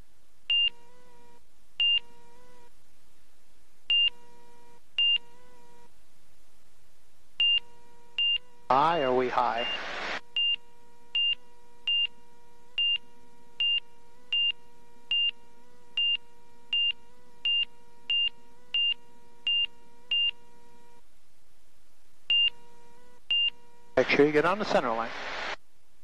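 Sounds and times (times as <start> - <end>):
high cockpit alert beeps: 8.2 - 10.6.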